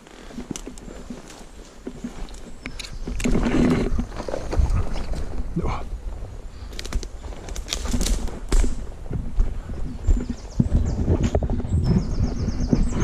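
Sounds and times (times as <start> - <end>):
brushing against undergrowth: 0.0 - 5.5
footsteps on dirt path: 0.0 - 13.0.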